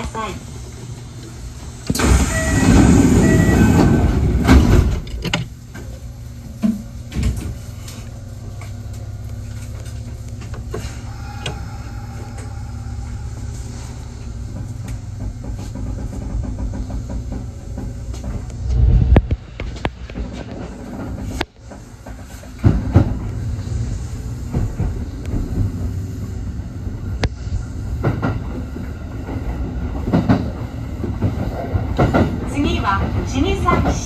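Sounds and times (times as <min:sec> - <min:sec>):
train low rumble: 0:00.0 - 0:34.0
short electronic tones: 0:02.3 - 0:03.8.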